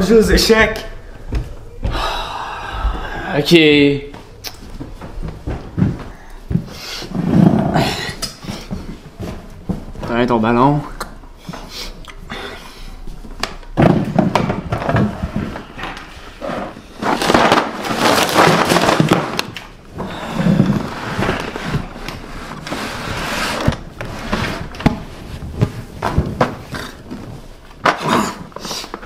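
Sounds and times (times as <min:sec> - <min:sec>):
objects knocking and clattering: 0:13.4 - 0:29.0
plastic bags crinkling: 0:17.0 - 0:26.4.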